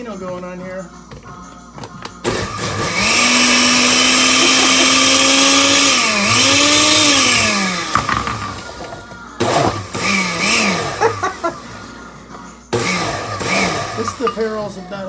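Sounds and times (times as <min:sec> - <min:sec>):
blender motor whining: 0:02.2 - 0:08.8, 0:09.4 - 0:11.6, 0:12.8 - 0:14.3.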